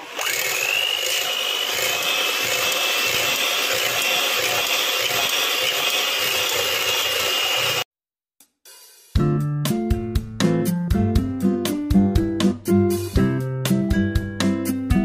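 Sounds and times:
electric hand mixer whirring: 0:00.0 - 0:07.9.

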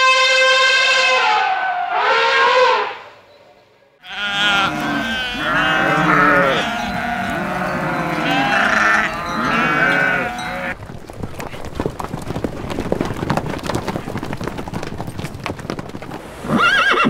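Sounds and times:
elephant call: 0:04.0 - 0:10.8
goats bleating: 0:04.0 - 0:10.8.

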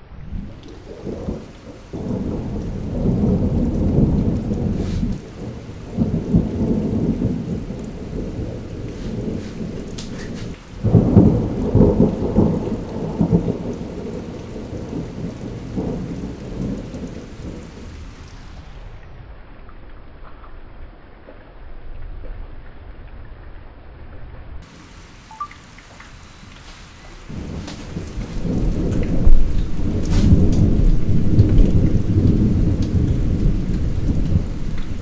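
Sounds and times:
thunder rumbling: 0:00.0 - 0:21.0, 0:24.6 - 0:35.0
steady rain: 0:00.0 - 0:35.0
sharp thunder peal: 0:00.4 - 0:18.9, 0:27.2 - 0:35.0.

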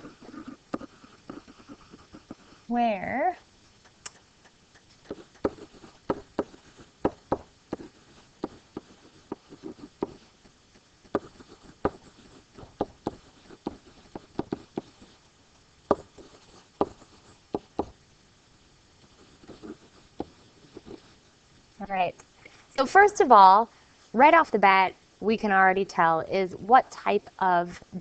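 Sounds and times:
pen tapping and scratching: 0:00.0 - 0:02.6, 0:03.8 - 0:15.2, 0:15.9 - 0:18.0, 0:19.2 - 0:21.1.

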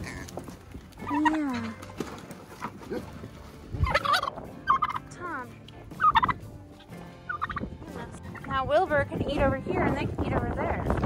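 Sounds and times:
turkey gobbling: 0:01.0 - 0:01.6, 0:02.2 - 0:05.1, 0:06.0 - 0:07.7.

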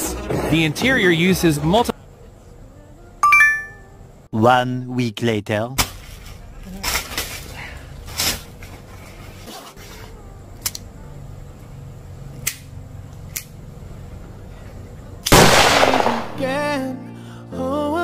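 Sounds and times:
soft melodic music: 0:02.8 - 0:04.0, 0:16.4 - 0:18.0
gunshot bang: 0:15.3 - 0:16.5.

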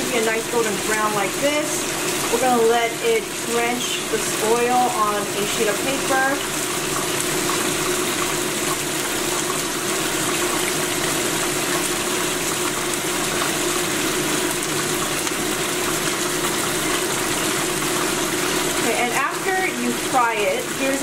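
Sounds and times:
food deep-frying in oil: 0:00.0 - 0:21.0.

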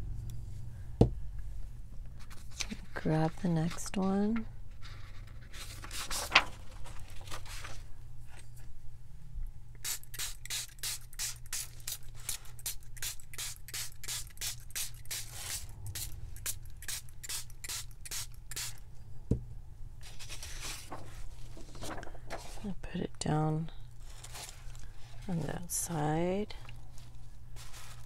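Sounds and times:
spray bottle pumps: 0:09.8 - 0:18.8.

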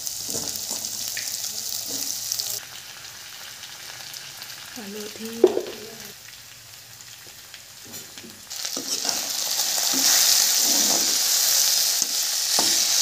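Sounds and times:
potatoes sizzling in hot oil: 0:00.0 - 0:13.0
metal spatula scraping a pan: 0:08.7 - 0:13.0.

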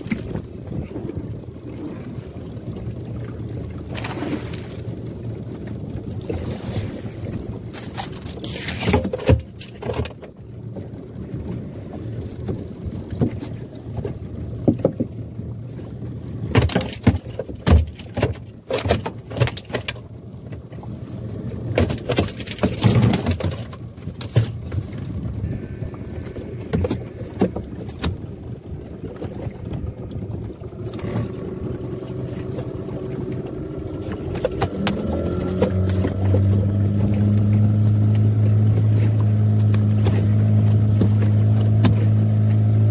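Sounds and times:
outboard motor running: 0:00.0 - 0:42.9
knocks and thumps on boat deck: 0:08.5 - 0:15.2, 0:16.4 - 0:20.8, 0:21.6 - 0:25.2, 0:26.3 - 0:28.4, 0:34.0 - 0:42.6.

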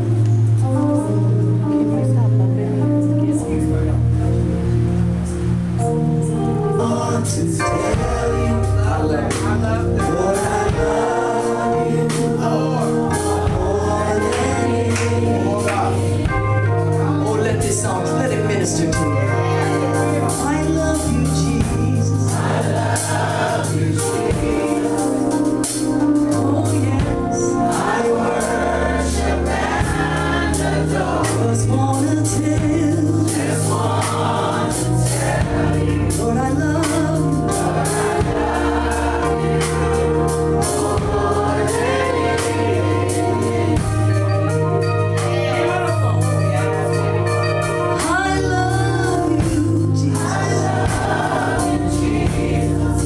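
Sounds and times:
organ chords: 0:00.0 - 0:53.0
steady bass line: 0:00.0 - 0:53.0
voices singing along: 0:06.4 - 0:53.0
woman singing into a microphone: 0:48.0 - 0:50.6.

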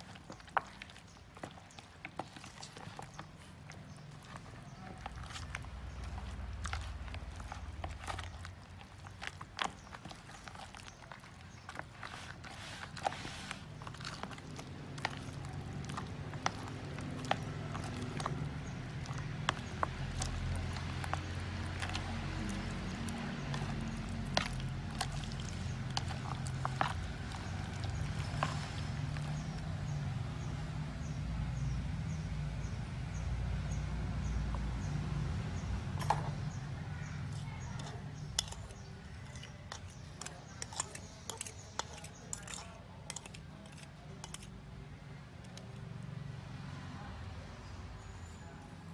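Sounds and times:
chicken feet clacking in plastic bowl: 0:00.0 - 0:30.0, 0:35.7 - 0:44.5.

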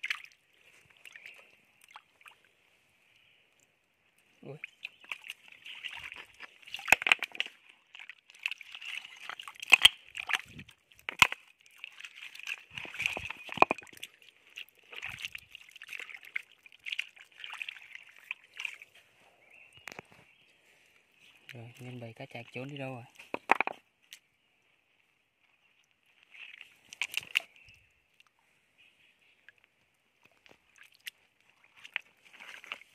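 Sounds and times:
water sloshing and splashing: 0:00.0 - 0:02.8, 0:04.2 - 0:20.1, 0:25.8 - 0:28.6, 0:29.4 - 0:32.9.

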